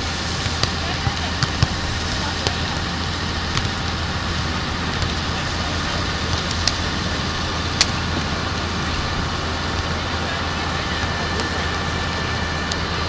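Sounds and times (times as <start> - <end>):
beach ambience: 0.0 - 13.0
hand slapping volleyball: 3.5 - 3.8.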